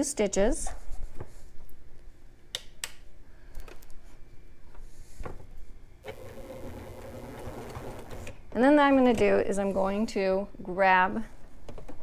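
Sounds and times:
sewing machine stitching: 6.0s - 8.4s.

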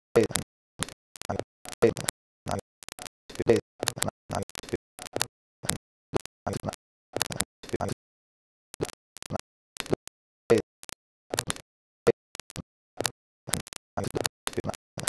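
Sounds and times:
choppy sound fragments: 0.2s - 8.0s.

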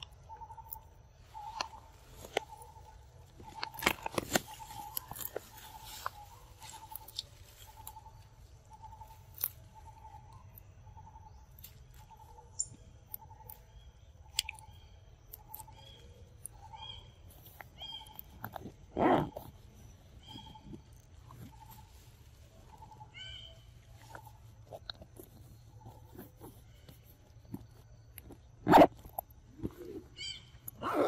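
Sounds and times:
stems and leaves snapping: 1.4s - 10.7s, 14.3s - 16.6s.

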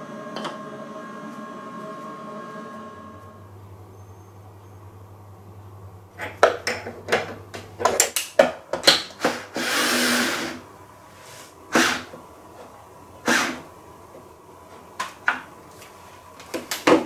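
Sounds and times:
router motor whirring: 9.5s - 10.6s.

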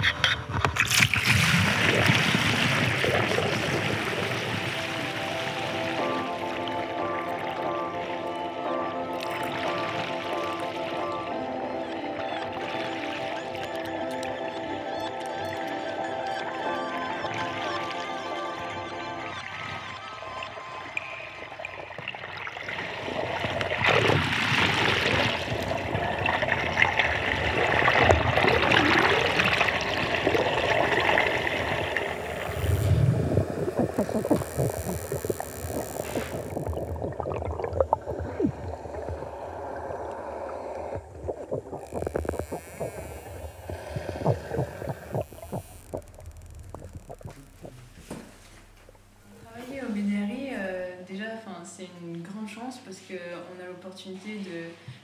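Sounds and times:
dolphin clicks: 11.9s - 16.6s, 40.7s - 49.1s
water hiss: 27.7s - 37.4s, 38.1s - 49.1s.

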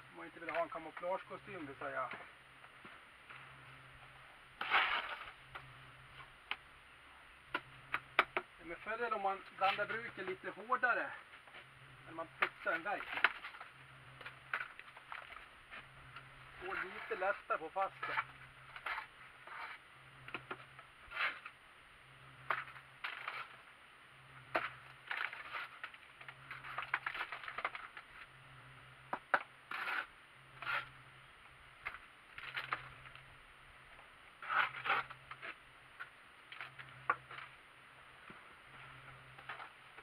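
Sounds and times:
trowel scraping mortar: 4.6s - 5.4s, 16.6s - 21.6s, 24.6s - 25.9s, 29.3s - 31.0s, 34.4s - 35.6s.

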